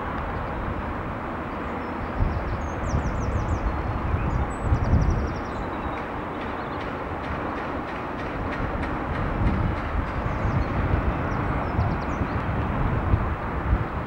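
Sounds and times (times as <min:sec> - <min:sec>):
steady rumble with low gusts: 0:08.6 - 0:14.0.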